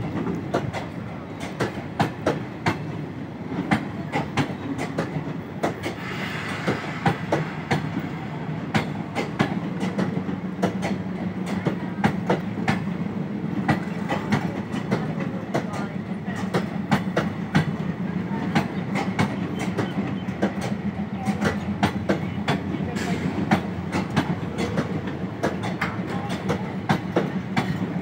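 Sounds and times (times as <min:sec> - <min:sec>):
train rumbling: 0:00.0 - 0:28.0
wheels clicking over rail joints: 0:20.4 - 0:28.0.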